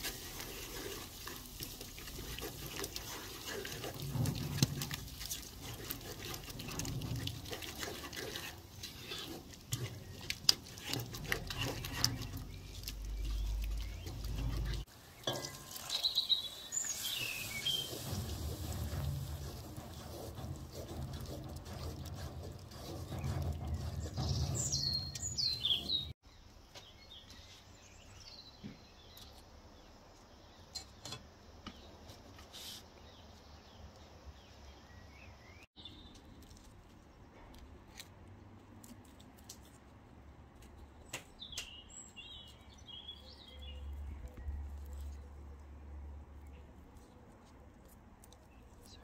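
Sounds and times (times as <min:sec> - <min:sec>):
onions frying: 0:00.0 - 0:06.5, 0:12.6 - 0:19.6
wooden spoon scraping a pot: 0:00.0 - 0:26.2
outdoor ambience: 0:00.0 - 0:49.0
small birds chirping: 0:08.3 - 0:18.1, 0:22.8 - 0:37.4, 0:40.9 - 0:47.4.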